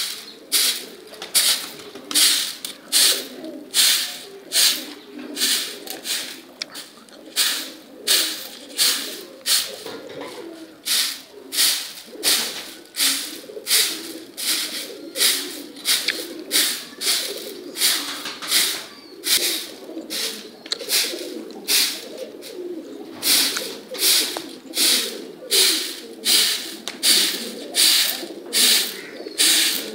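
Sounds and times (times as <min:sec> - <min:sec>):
pigeons cooing: 0:00.0 - 0:29.9.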